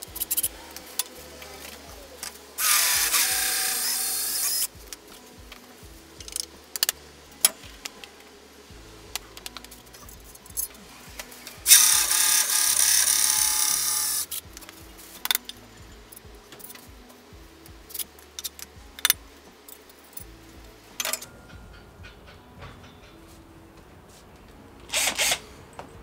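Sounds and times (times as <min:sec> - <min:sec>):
cordless drill whining: 0:02.6 - 0:04.7, 0:11.6 - 0:14.3, 0:24.9 - 0:25.4.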